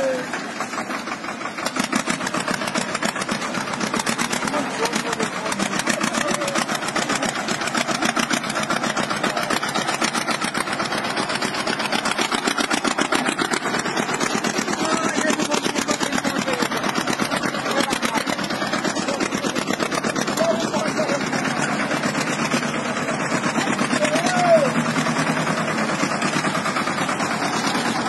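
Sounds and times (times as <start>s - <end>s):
diesel tractor engine running: 0.0s - 28.0s.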